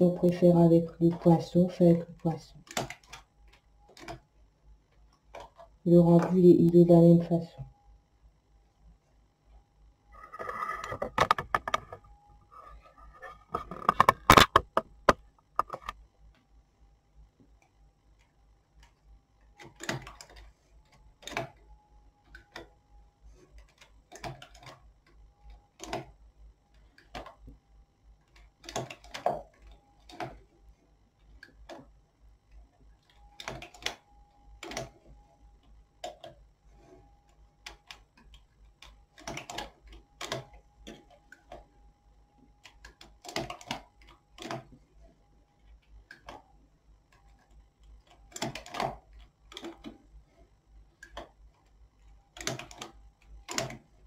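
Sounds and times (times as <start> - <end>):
knitting machine metal clicks: 2.6 - 4.2, 19.6 - 20.5, 21.2 - 21.6, 23.6 - 24.9, 25.8 - 26.2, 28.2 - 30.4, 33.0 - 34.0, 34.6 - 35.0, 37.6 - 41.6, 42.6 - 44.8, 47.1 - 50.0, 51.0 - 54.0.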